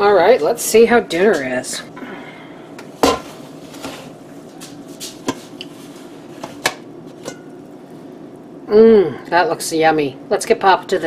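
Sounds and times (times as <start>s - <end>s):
pan and lid clinking: 6.6s - 7.6s.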